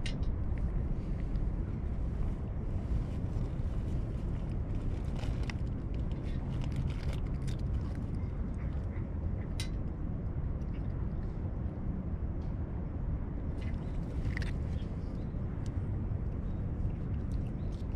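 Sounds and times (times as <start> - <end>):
steady low rumble: 0.0 - 17.9
cat chewing and lapping: 3.8 - 9.5, 13.6 - 14.8, 16.5 - 17.9.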